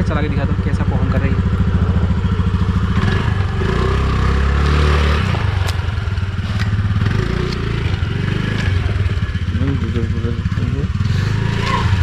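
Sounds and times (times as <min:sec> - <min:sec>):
scooter engine revving: 0:00.0 - 0:12.0.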